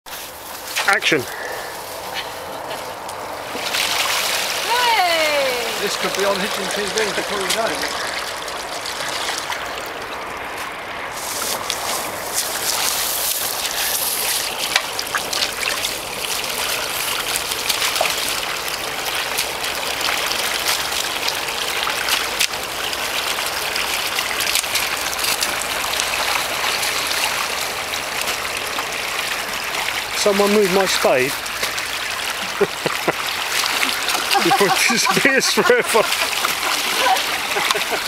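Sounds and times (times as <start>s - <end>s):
muddy water trickling: 0.1s - 38.0s.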